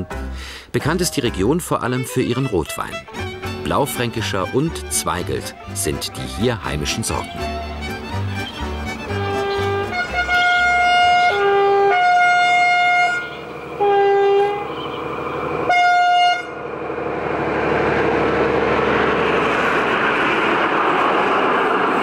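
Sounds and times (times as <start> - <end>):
railcar passing by: 0.0 - 22.0
train horn blasts: 9.0 - 15.0, 15.6 - 16.6.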